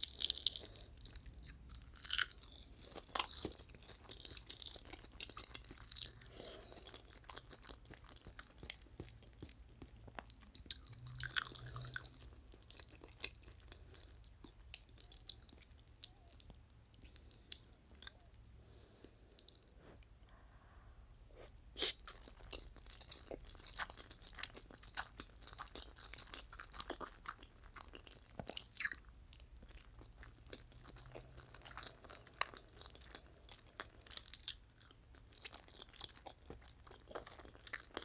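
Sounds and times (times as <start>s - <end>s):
chewing crunchy food: 0.0s - 20.2s, 21.6s - 38.0s.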